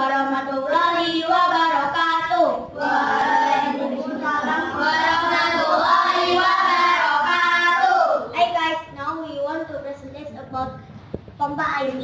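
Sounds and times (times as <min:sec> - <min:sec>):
children singing: 0:00.0 - 0:08.3.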